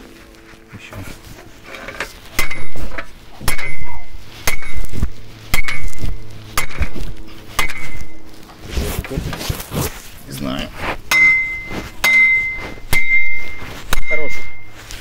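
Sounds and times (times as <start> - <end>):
metal pounding on metal: 2.4 - 8.2, 11.1 - 14.6.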